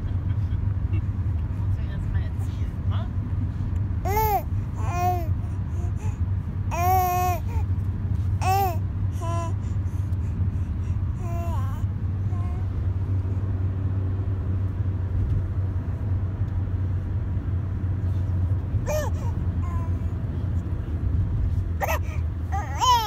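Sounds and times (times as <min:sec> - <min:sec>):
car rumbling on the move: 0:00.0 - 0:23.0
baby babbling: 0:04.0 - 0:07.7, 0:08.4 - 0:09.8, 0:11.2 - 0:12.7, 0:18.8 - 0:20.1, 0:21.8 - 0:23.0.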